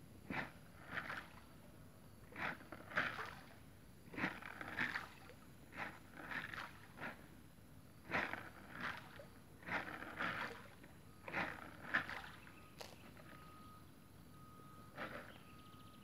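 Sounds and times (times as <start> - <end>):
short splashes in water: 0.3 - 1.6, 2.3 - 7.2, 8.0 - 13.4.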